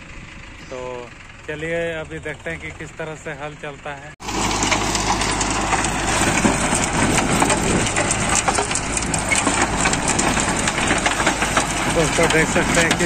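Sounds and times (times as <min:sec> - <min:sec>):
tractor diesel engine: 0:00.0 - 0:13.0
rotavator churning soil: 0:04.2 - 0:13.0.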